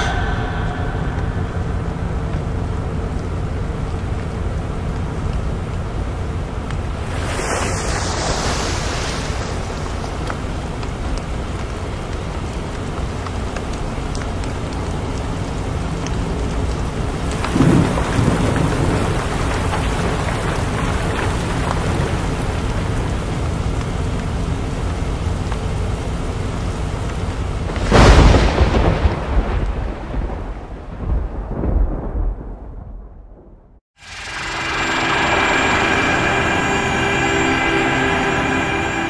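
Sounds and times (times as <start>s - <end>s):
thunder: 0.0s - 3.1s, 17.3s - 22.7s, 27.7s - 39.0s
heavy rain: 0.0s - 32.8s, 34.0s - 39.0s.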